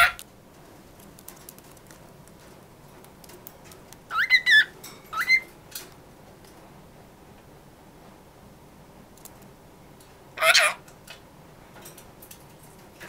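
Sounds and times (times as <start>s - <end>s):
parrot whistled calls: 4.1s - 5.5s.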